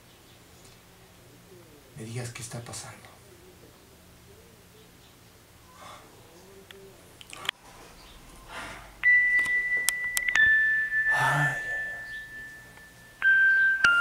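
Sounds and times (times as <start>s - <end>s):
breathy rush of noise: 5.6s - 13.2s
high electronic tone stepping down: 8.1s - 14.0s.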